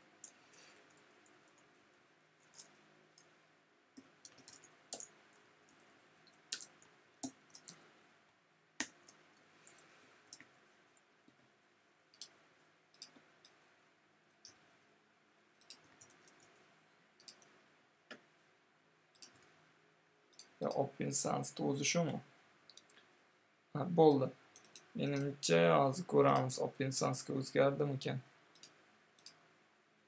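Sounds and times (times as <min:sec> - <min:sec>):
mouse clicks: 0:12.1 - 0:13.6, 0:15.6 - 0:16.5, 0:17.2 - 0:17.5.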